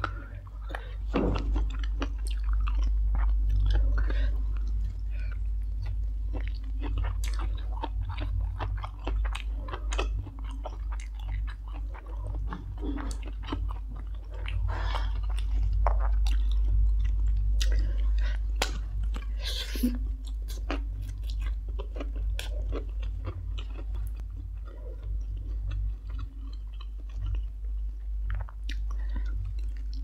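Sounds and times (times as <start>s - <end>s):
person chewing with mouth clicks: 0.0s - 30.0s
steady low hum: 0.0s - 30.0s.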